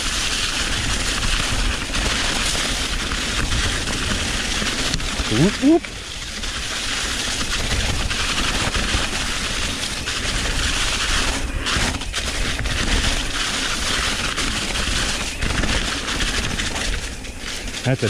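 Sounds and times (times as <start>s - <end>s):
mountain bike rattling: 0.0s - 18.0s
tyre noise: 0.5s - 5.9s.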